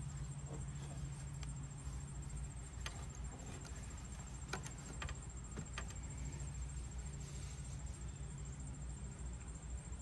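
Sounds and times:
rag rustling: 0.5s - 8.0s.

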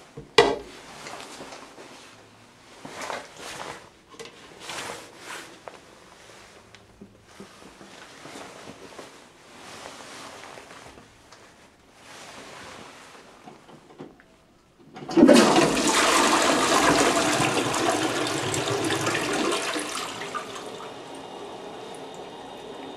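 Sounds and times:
toilet flushing: 14.8s - 22.9s
water running: 15.0s - 22.9s.

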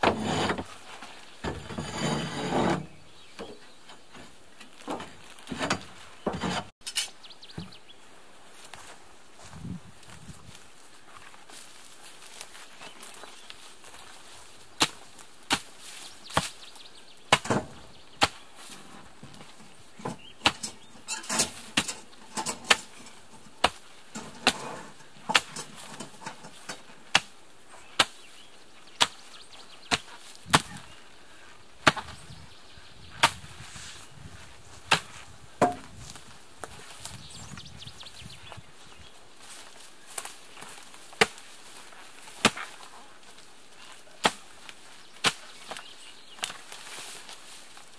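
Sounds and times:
mattock striking soil and roots: 12.3s - 30.9s, 39.4s - 47.9s.

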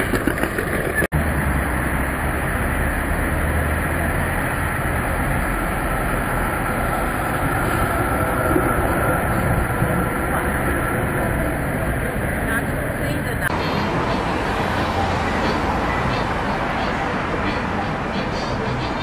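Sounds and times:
city traffic: 0.0s - 19.0s
electric tram running: 0.0s - 19.0s
faint tram whine: 0.0s - 19.0s.

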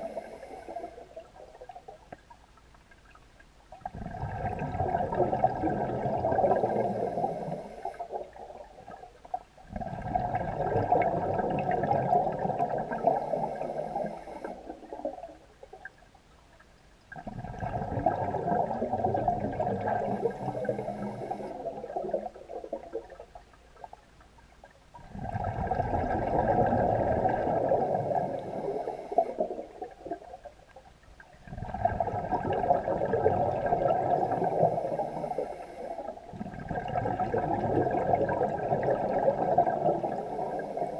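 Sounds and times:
breathing through a regulator: 0.0s - 1.3s, 4.1s - 8.3s, 11.8s - 15.2s, 18.9s - 22.4s, 26.6s - 30.0s, 33.5s - 36.6s, 37.9s - 40.9s
diver exhaling bubbles underwater: 3.8s - 15.4s, 17.1s - 23.9s, 25.0s - 30.5s, 31.4s - 40.9s.

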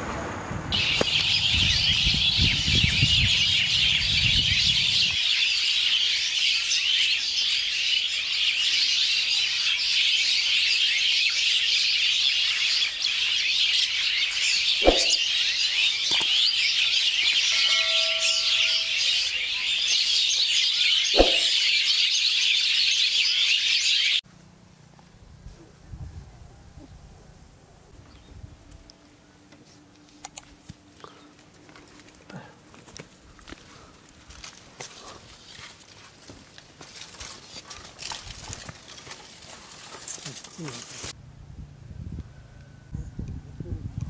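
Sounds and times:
small birds chirping: 0.7s - 24.2s.

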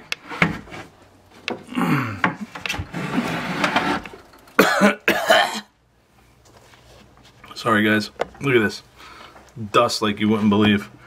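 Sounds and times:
fabric rubbing and rustling: 6.4s - 7.5s.

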